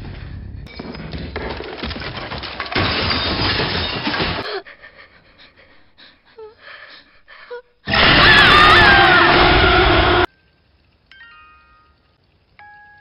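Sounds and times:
glass and wood breaking: 0.7s - 4.5s
picture frames crashing down stairs: 0.8s - 4.6s.

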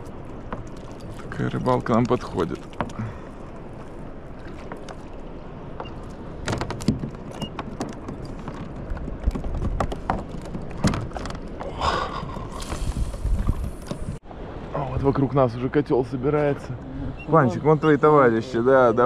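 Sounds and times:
knocks and clatter on boat: 0.0s - 14.2s
water noise: 0.0s - 19.0s
wind: 0.0s - 19.0s.

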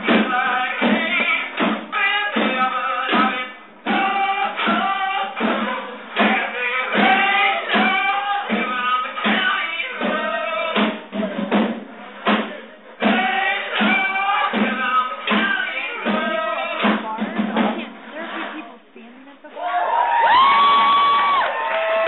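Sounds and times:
person singing: 0.0s - 11.0s, 13.0s - 17.9s
steady drum beat: 0.0s - 19.5s.

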